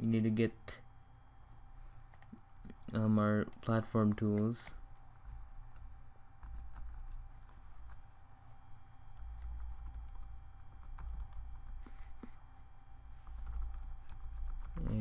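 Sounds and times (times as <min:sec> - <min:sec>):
low steady hum: 0:00.0 - 0:15.0
keyboard typing clicks: 0:09.2 - 0:11.8, 0:13.4 - 0:15.0.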